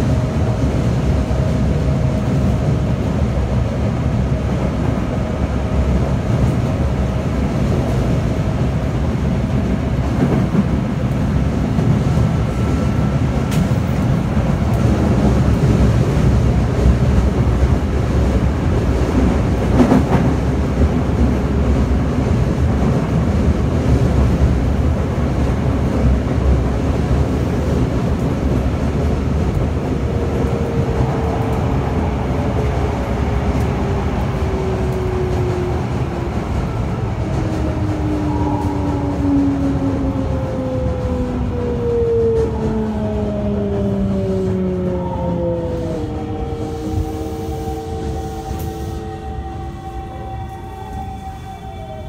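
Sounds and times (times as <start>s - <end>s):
wheels rumbling on rail: 0.0s - 52.0s.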